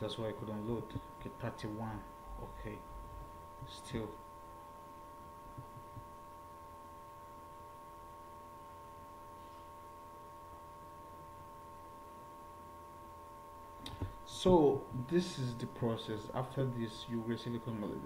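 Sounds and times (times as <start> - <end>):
electrical hum: 0.0 - 18.0
low hiss: 13.3 - 18.0.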